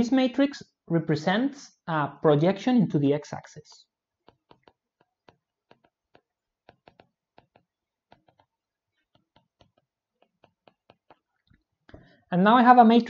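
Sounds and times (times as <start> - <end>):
stylus tapping tablet screen: 4.2 - 12.0.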